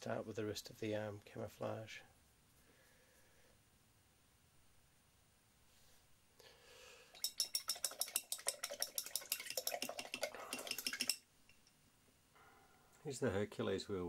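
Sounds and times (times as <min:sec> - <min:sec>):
soft rustle: 0:05.6 - 0:06.2
paintbrush clinking in glass jar: 0:07.2 - 0:11.7.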